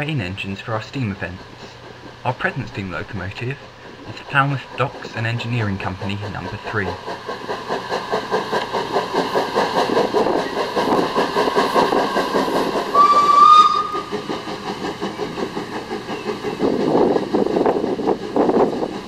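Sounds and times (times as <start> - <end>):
steam locomotive chuffing: 0.0 - 19.0
steam whistle blast: 12.9 - 14.0.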